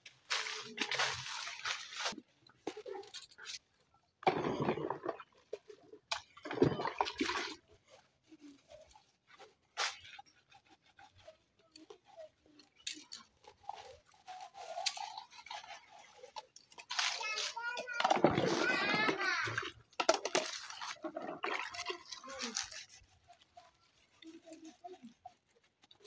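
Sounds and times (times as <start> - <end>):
sponge scrubbing plastic cups: 0.0 - 26.0
water sloshing: 4.2 - 7.8, 14.1 - 23.1.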